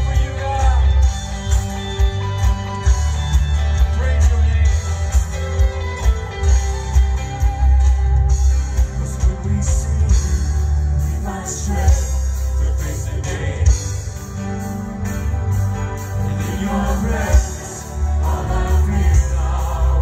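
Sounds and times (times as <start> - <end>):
man singing lead vocals: 0.0 - 1.5, 8.6 - 14.2, 16.2 - 20.0
electric guitar: 0.0 - 20.0
keyboard: 0.0 - 20.0.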